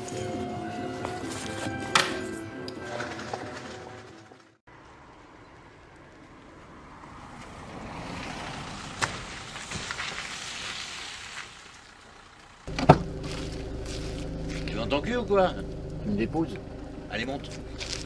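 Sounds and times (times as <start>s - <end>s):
tyre hiss on wet road: 7.7s - 12.6s
van engine idling: 11.6s - 18.0s.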